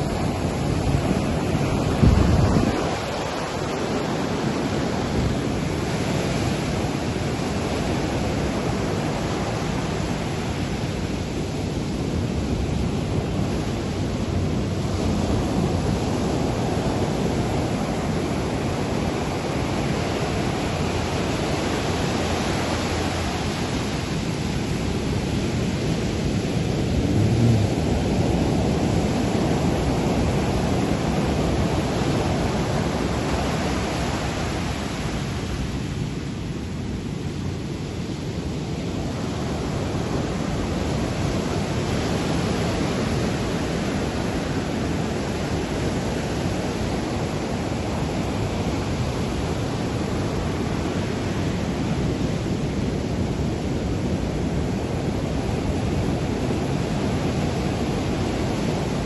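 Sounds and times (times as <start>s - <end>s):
surf breaking on beach: 0.0s - 11.0s, 12.4s - 35.9s
wind buffeting microphone: 0.0s - 59.0s.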